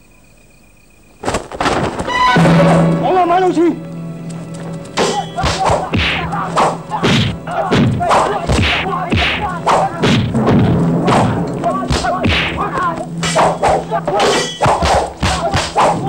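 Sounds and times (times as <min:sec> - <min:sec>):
fighters grunting and shouting: 0:05.0 - 0:16.0
punch and kick thuds: 0:05.0 - 0:16.0.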